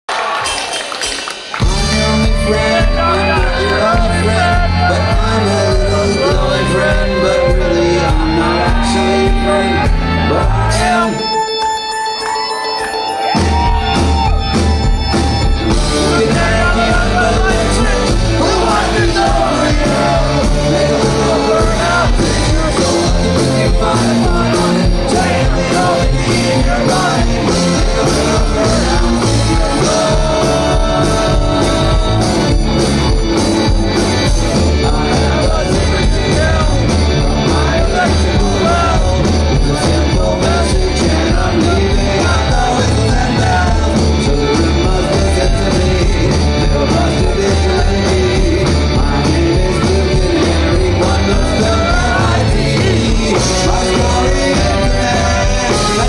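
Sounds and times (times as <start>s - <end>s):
rock band playing: 0.1s - 56.0s.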